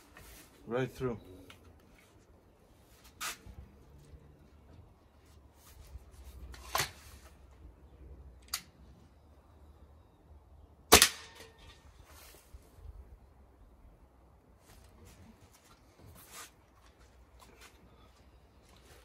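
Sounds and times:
air rifle clicks: 8.4s - 8.8s
air rifle shot: 10.9s - 11.5s.

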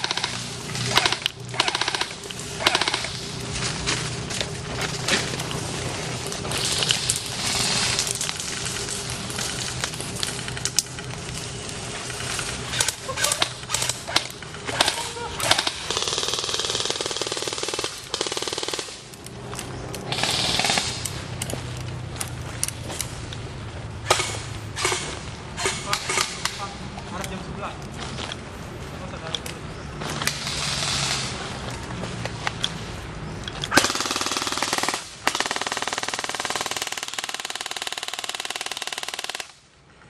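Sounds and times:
airsoft guns firing: 0.0s - 3.2s, 12.7s - 19.2s, 20.1s - 21.1s, 24.0s - 26.7s, 33.7s - 39.6s.

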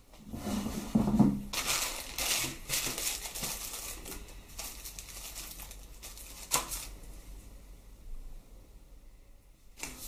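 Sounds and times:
plastic bags crinkling: 1.5s - 7.0s.

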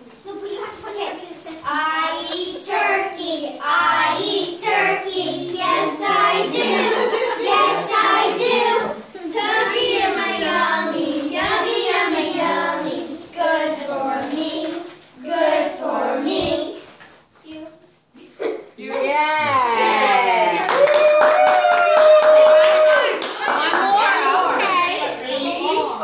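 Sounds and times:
children singing in unison: 2.6s - 16.8s.

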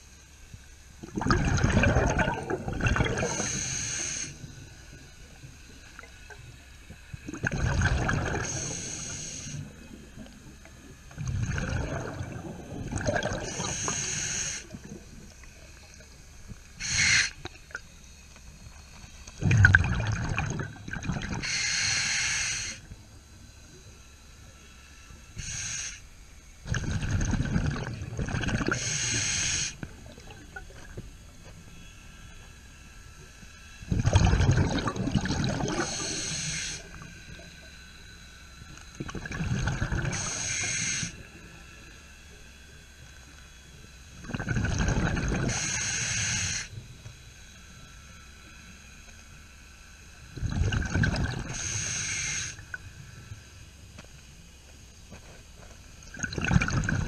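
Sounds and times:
exhaled air bubbling: 1.0s - 17.9s, 18.7s - 21.8s, 26.6s - 31.0s, 33.8s - 37.5s, 38.9s - 41.2s, 44.2s - 46.7s, 50.3s - 53.0s, 56.0s - 57.0s
regulator hiss: 2.2s - 26.8s, 27.8s - 34.0s, 34.6s - 44.3s, 45.0s - 50.5s, 51.1s - 57.0s
diver breathing through regulator: 3.0s - 4.6s, 8.0s - 9.8s, 11.6s - 15.0s, 16.8s - 17.4s, 21.3s - 22.8s, 25.3s - 26.1s, 28.6s - 29.8s, 35.6s - 37.0s, 39.9s - 41.2s, 45.4s - 46.8s, 51.4s - 52.7s.

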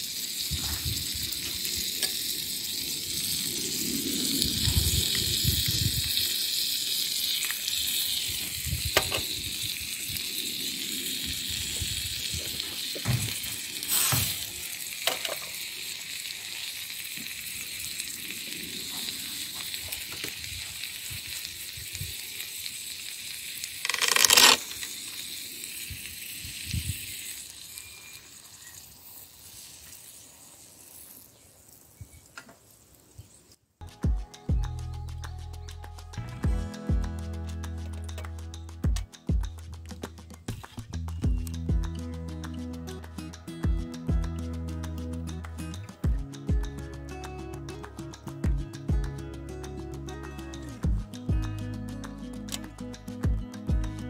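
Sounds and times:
onions sizzling in a pan: 0.0s - 23.8s, 24.6s - 33.4s.

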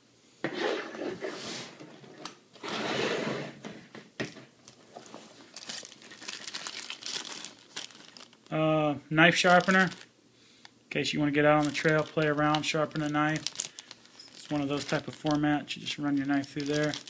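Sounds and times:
plastic bag crinkling: 4.6s - 8.6s, 9.2s - 10.1s, 11.2s - 17.0s.

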